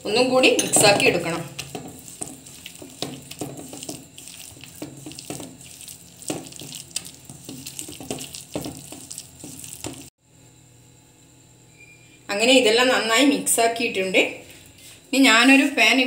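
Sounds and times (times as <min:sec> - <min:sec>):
taps and scrapes on steel bowl: 0:00.5 - 0:10.1
wet dough squelching: 0:00.9 - 0:10.1.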